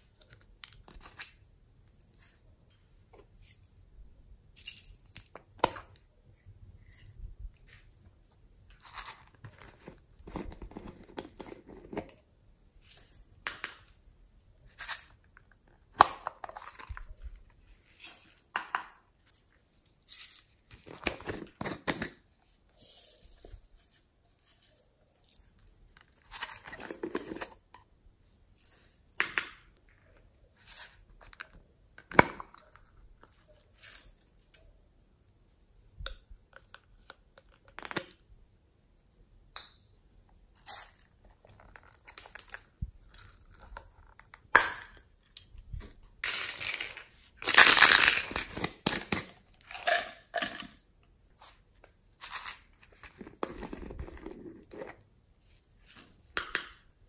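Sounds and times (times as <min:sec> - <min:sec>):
plastic packaging crinkling: 0:46.2 - 0:50.0.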